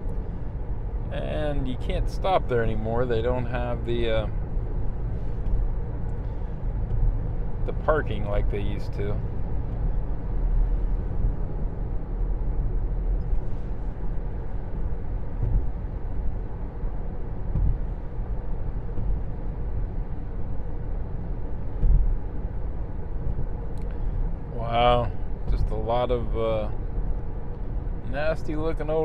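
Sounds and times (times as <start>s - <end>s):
tyre and road noise in car: 0.0s - 29.0s
car bump: 15.2s - 19.6s, 21.7s - 22.6s, 25.0s - 26.2s.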